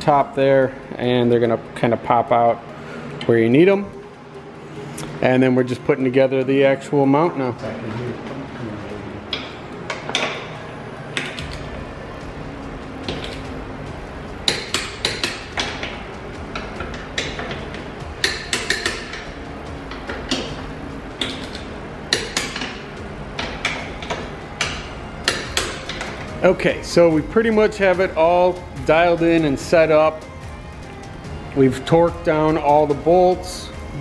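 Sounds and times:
ratchet wrench clicking: 18.2s - 19.2s.

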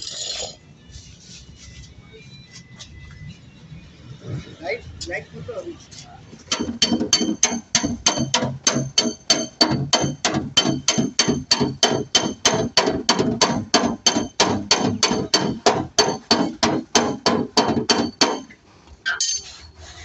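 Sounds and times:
hammer strikes on sheet metal: 6.5s - 18.6s.

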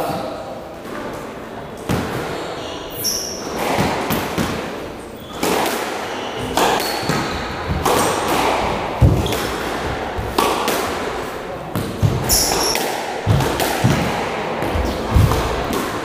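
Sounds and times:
shoe squeak: 2.1s - 3.6s, 5.1s - 8.0s, 12.2s - 12.9s
squash ball knocks: 3.5s - 4.8s, 5.4s - 16.0s.

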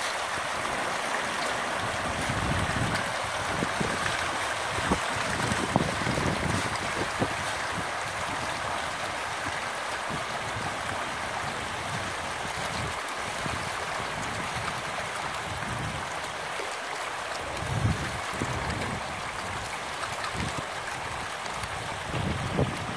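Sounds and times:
fish splashing at the surface: 0.0s - 9.9s
wind rumble on microphone: 1.8s - 16.2s, 17.4s - 22.9s.

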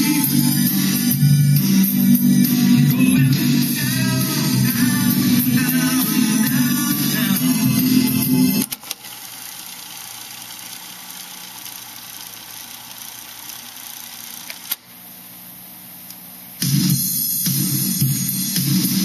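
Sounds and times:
song playing from cassette: 0.0s - 9.0s, 16.6s - 19.0s.

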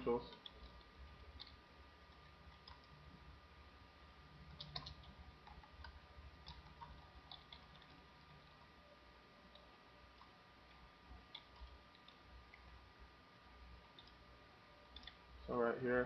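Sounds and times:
faint steady hum: 0.0s - 16.0s
keyboard typing clicks: 0.3s - 3.0s, 4.5s - 8.7s, 11.3s - 12.7s, 13.9s - 14.2s, 14.9s - 15.2s.

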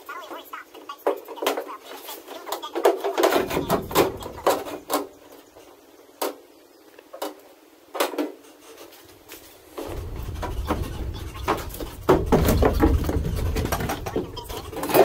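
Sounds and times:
knocks and clatter: 1.0s - 5.2s, 9.6s - 15.0s
low rumble: 9.8s - 14.8s.

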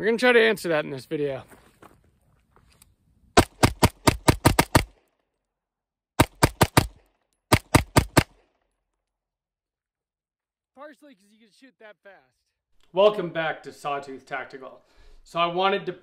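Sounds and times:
pistol shots: 3.4s - 5.0s, 6.2s - 8.5s.

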